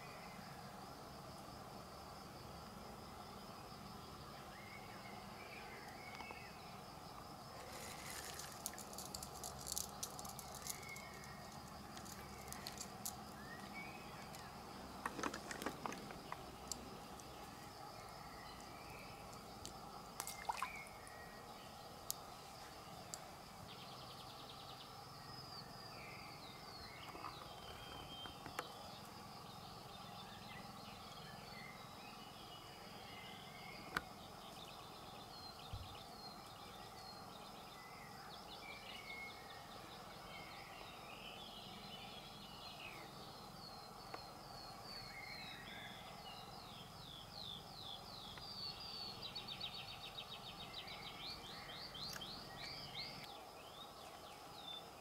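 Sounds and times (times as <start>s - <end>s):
faint steady hum: 0.0s - 55.0s
songbirds chirping and trilling: 0.0s - 55.0s.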